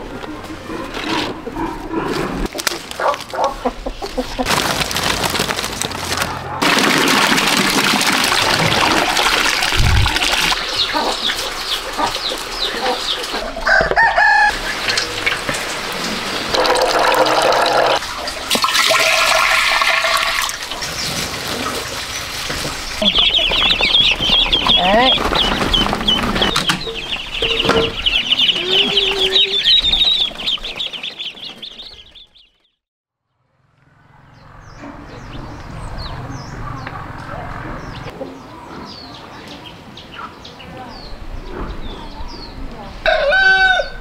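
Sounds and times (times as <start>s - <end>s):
chickens clucking: 0.0s - 5.2s, 8.4s - 18.5s, 20.3s - 32.6s
roosters crowing: 12.0s - 15.4s, 43.0s - 44.0s.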